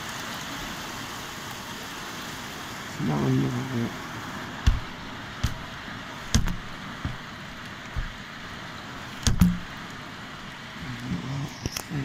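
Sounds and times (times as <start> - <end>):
heavy rain: 0.0 - 12.0
sharp knocks: 4.6 - 5.7, 6.3 - 7.3, 7.9 - 8.2, 9.2 - 9.7.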